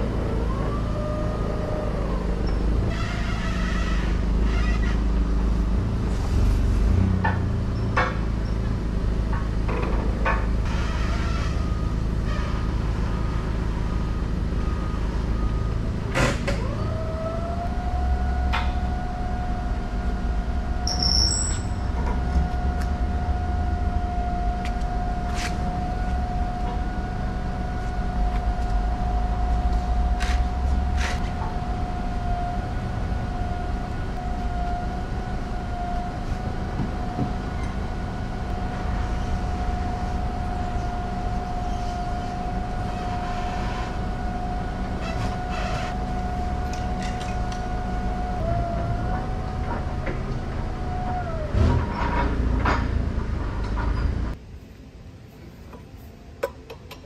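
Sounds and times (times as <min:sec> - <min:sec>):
machine whining: 0:00.0 - 0:54.4
low rumble: 0:00.0 - 0:55.6.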